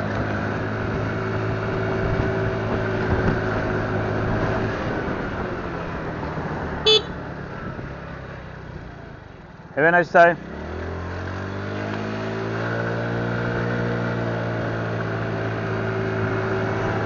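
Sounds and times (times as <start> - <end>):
wind and road noise: 0.0 - 17.0
motorcycle engine running: 6.8 - 17.0
short horn beep: 6.9 - 7.2.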